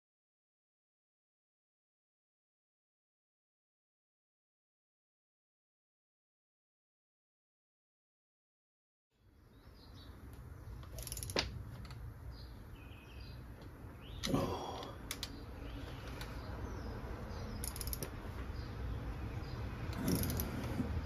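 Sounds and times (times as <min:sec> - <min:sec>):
socket ratchet clicks: 0:10.8 - 0:12.0, 0:17.6 - 0:18.2, 0:19.9 - 0:20.6.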